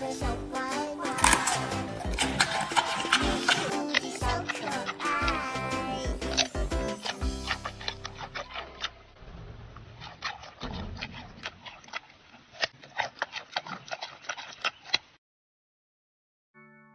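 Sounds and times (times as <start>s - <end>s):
panda crunching carrot: 1.0s - 9.2s, 9.8s - 15.2s.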